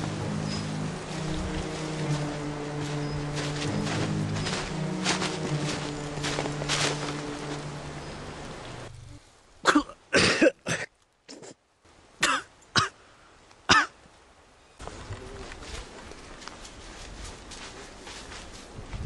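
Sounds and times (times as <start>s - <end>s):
background music with low notes: 0.0s - 8.9s
man coughing harshly: 9.7s - 11.5s, 12.2s - 13.0s.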